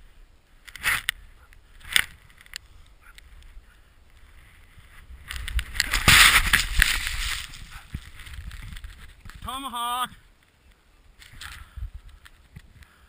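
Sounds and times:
wind buffeting microphone: 1.1s - 9.5s, 11.2s - 12.9s.

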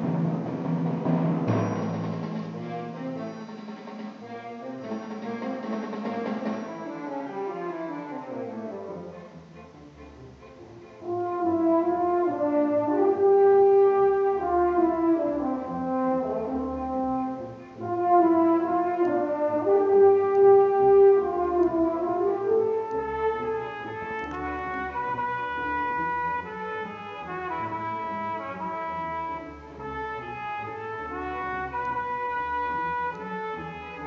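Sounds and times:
orchestra playing: 0.0s - 34.0s.

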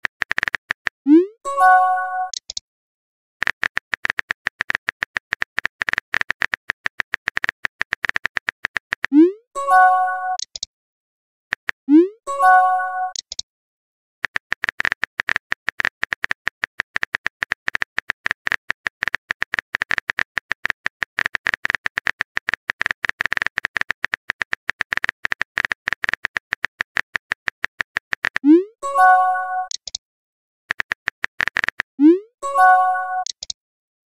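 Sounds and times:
phone keyboard typing clicks: 0.0s - 1.0s, 2.2s - 2.6s, 3.4s - 9.2s, 10.3s - 10.7s, 13.1s - 13.4s, 14.2s - 30.0s, 30.7s - 31.9s, 32.6s - 33.6s
message pop chime: 1.2s - 2.4s, 9.2s - 10.5s, 11.9s - 13.2s, 28.5s - 29.8s, 32.0s - 33.4s.

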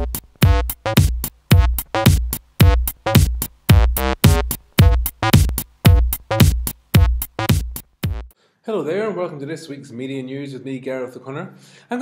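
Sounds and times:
low electronic beats: 0.0s - 8.4s.

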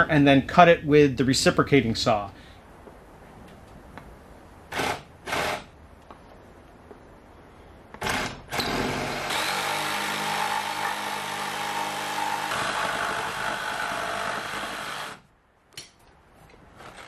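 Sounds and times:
reciprocating saw cutting plywood: 4.7s - 5.7s, 8.0s - 15.2s.

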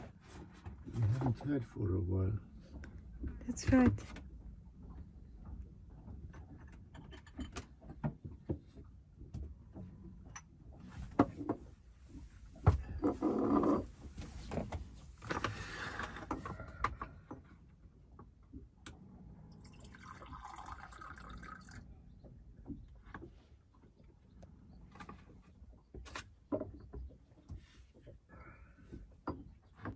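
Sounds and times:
liquid being poured: 19.6s - 21.8s.

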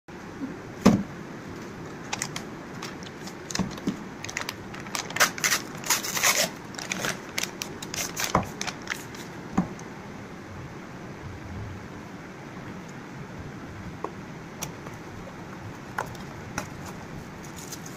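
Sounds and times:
paper bag crumpling and tearing: 2.1s - 9.3s.

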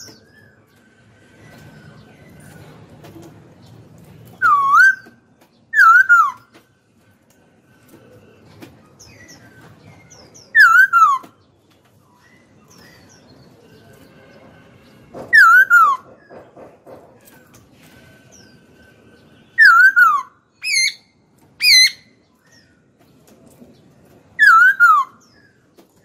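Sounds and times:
laughingthrush whistled song: 4.4s - 5.1s, 5.7s - 6.4s, 10.6s - 11.2s, 19.4s - 21.0s, 24.4s - 25.2s.

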